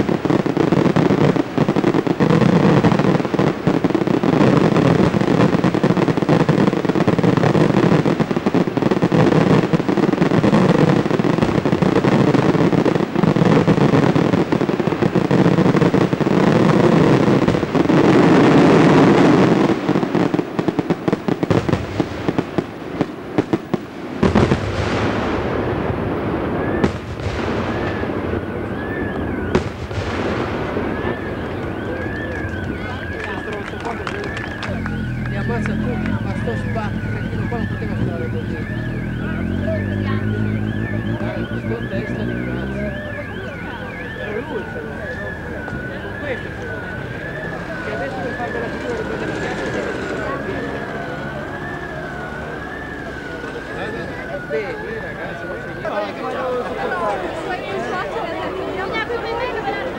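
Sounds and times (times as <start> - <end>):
fireworks bursts and crackle: 0.0 - 59.9
wavering siren-like tone: 27.6 - 29.8, 30.5 - 59.9.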